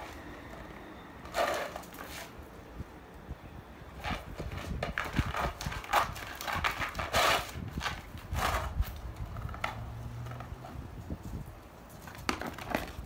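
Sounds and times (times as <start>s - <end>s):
dog claws scraping concrete: 0.0s - 2.4s, 4.0s - 13.0s
plastic frisbee clacking on concrete: 0.0s - 2.4s, 4.0s - 10.9s, 11.9s - 13.0s.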